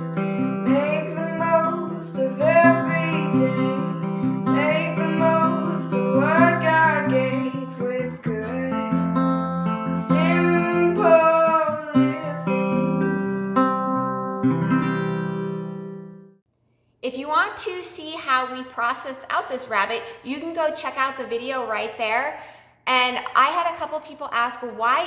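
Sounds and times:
strummed acoustic guitar: 0.0s - 16.3s.

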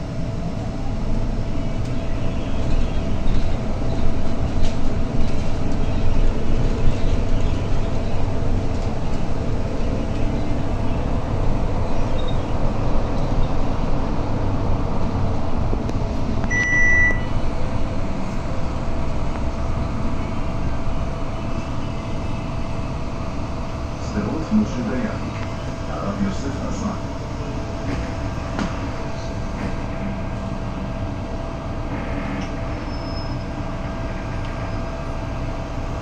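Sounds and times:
bus engine and road rumble: 0.0s - 36.0s
short high beep: 16.5s - 17.3s.

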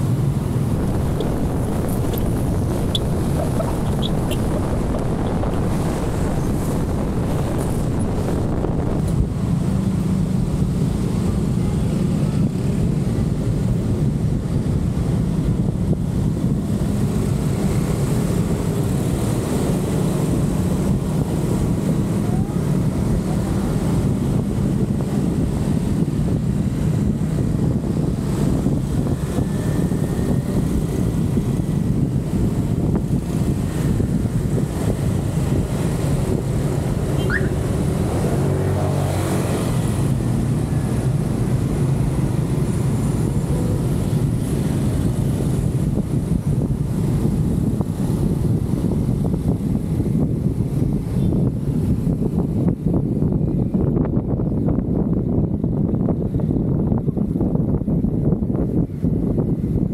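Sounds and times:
car engine and road noise rumble: 0.0s - 59.9s.

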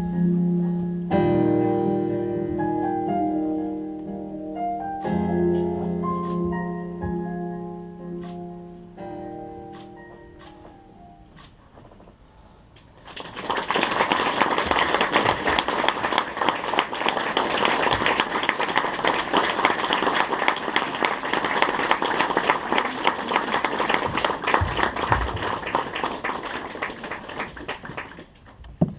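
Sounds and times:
audience applause: 13.0s - 28.6s.

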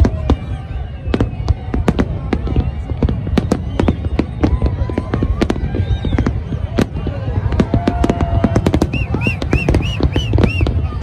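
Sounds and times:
firework bangs and crackles: 0.0s - 11.0s
firework whistles: 0.0s - 11.0s.

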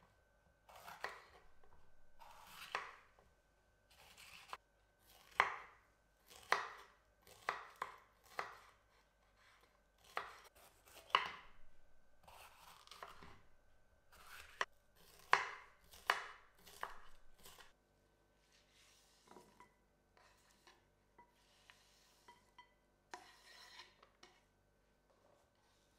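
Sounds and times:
knife slicing on cutting board: 2.2s - 3.0s, 12.2s - 13.4s, 14.1s - 17.7s.

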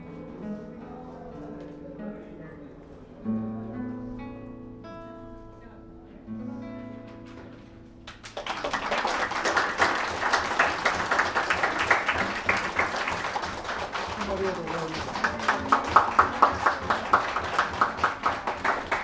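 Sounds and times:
audience applause: 8.1s - 19.0s.

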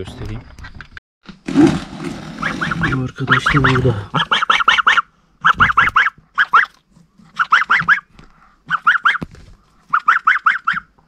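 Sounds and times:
gosling peeping: 2.4s - 8.1s, 8.7s - 9.2s, 9.8s - 11.0s.

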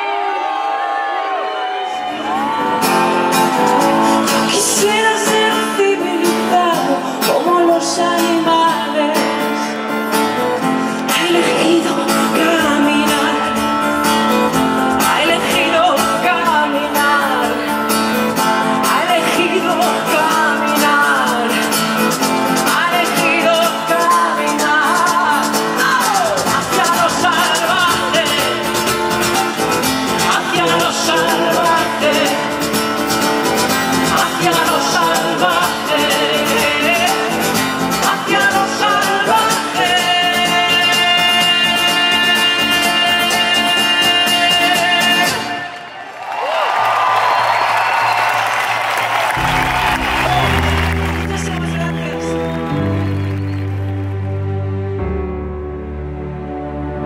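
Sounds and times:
person singing: 0.0s - 45.9s
guitar: 0.0s - 46.1s, 46.7s - 57.0s
percussion beat: 48.5s - 51.7s.

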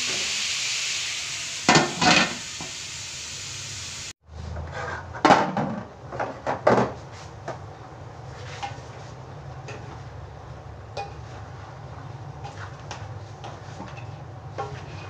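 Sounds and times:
metal cookware clanking: 1.7s - 2.4s
spatula scraping a steel wok: 4.3s - 5.2s, 11.1s - 15.0s.

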